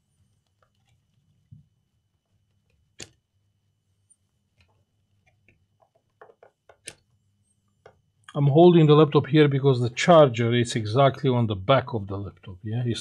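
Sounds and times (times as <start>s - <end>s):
laptop chassis clicks and knocks: 5.3s - 7.0s.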